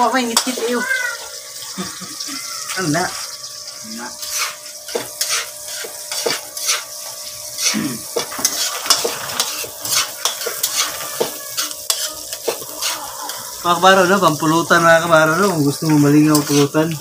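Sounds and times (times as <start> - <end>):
food sizzling in hot oil: 0.0 - 17.0
metal spatula scraping a wok: 4.1 - 13.6, 16.2 - 17.0.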